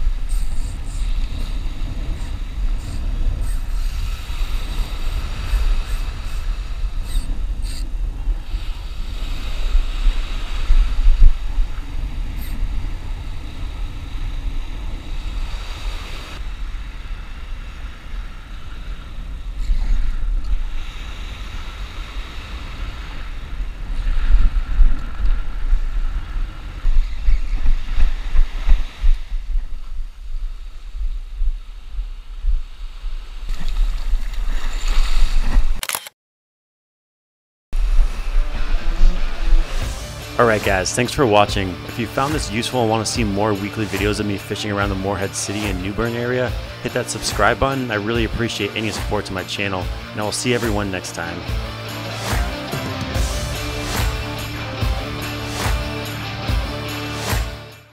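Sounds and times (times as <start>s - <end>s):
wind buffeting microphone: 0.0s - 35.7s
surf breaking on beach: 0.0s - 35.8s, 37.8s - 57.9s.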